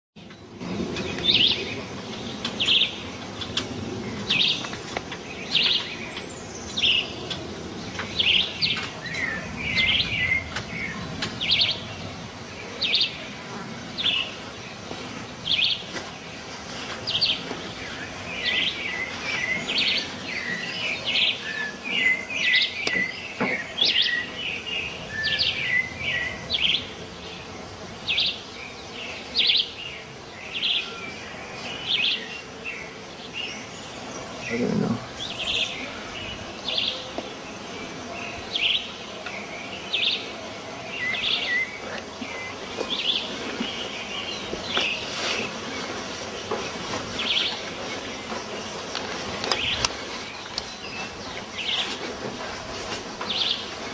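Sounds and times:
bird chirps: 0.2 - 12.0.

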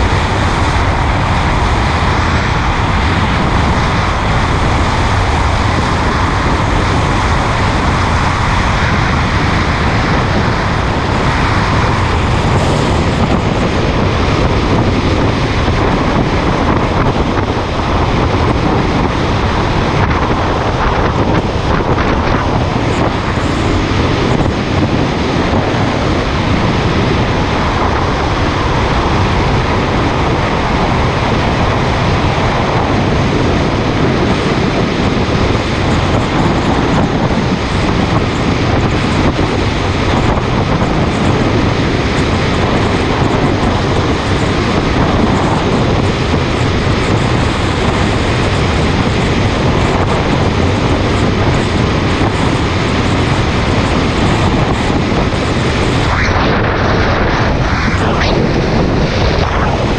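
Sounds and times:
motorcycle road noise: 0.0 - 59.9
wind buffeting microphone: 0.0 - 59.9
wind rush: 0.0 - 59.9.

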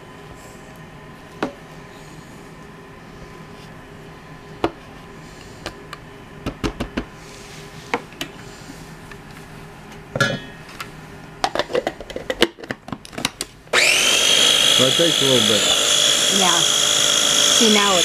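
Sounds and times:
food chopper motor whirring: 13.7 - 18.0.

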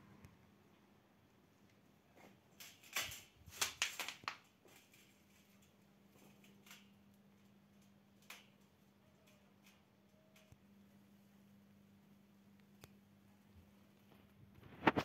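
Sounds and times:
faint steady hum: 4.4 - 14.9.

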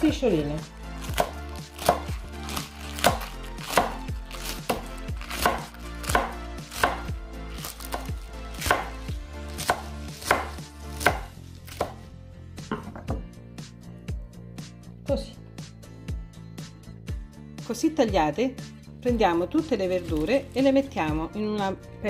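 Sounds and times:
knife chopping on wooden board: 1.1 - 12.0.

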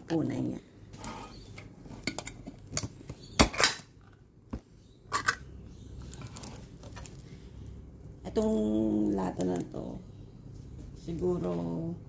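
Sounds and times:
metal can lid clicking and scraping: 5.1 - 5.4.

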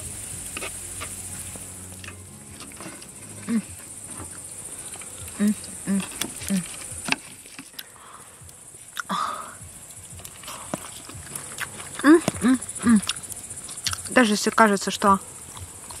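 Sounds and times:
crickets chirping: 0.0 - 16.0
low grunting: 2.9 - 3.9.

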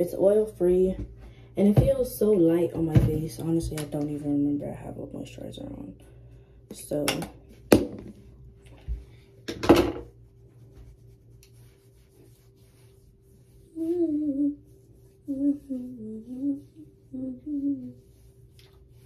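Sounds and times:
girl humming: 13.7 - 14.7, 15.3 - 18.2.

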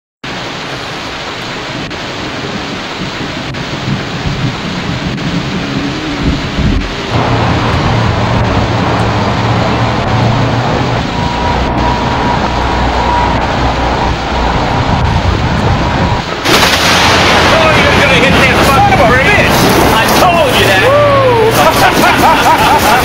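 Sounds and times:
rain pattering on car: 0.3 - 12.6, 13.5 - 23.0
thunder rumble: 0.4 - 23.0
steady low hum: 4.8 - 20.1.

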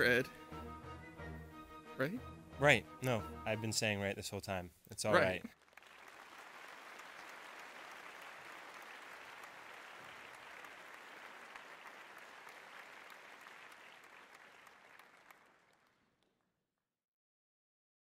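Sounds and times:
applause: 5.1 - 16.5.

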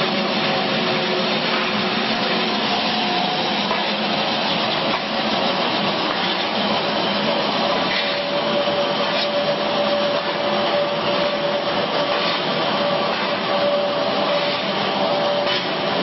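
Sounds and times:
machine whine: 0.0 - 16.0
pellet mill whirring: 0.0 - 16.0.

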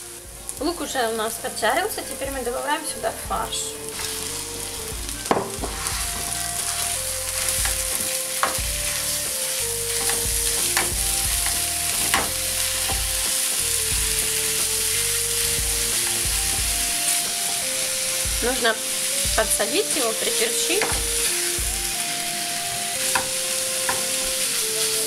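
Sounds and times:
meat sizzling in a frying pan: 0.0 - 25.0
spatula knocking on pan: 7.6 - 8.8, 10.0 - 13.2, 20.8 - 21.3, 23.1 - 23.3.

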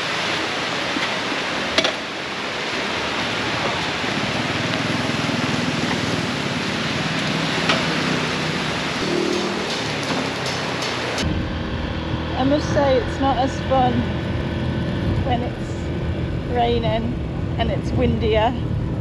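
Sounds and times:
heavy rain hissing: 0.0 - 11.2
motorbike engine hum: 0.2 - 19.0.

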